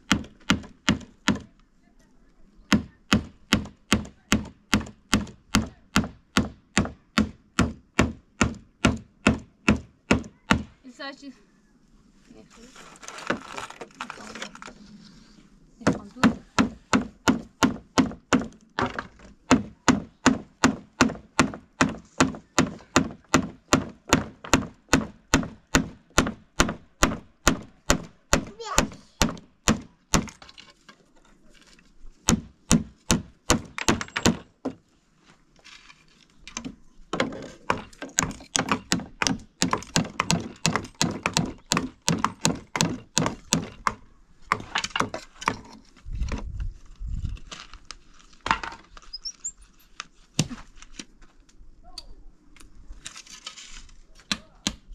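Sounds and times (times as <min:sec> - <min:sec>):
hammer driving nails into wood: 0:00.1 - 0:01.5, 0:02.7 - 0:10.8, 0:15.8 - 0:30.6, 0:32.2 - 0:34.5, 0:36.5 - 0:45.8.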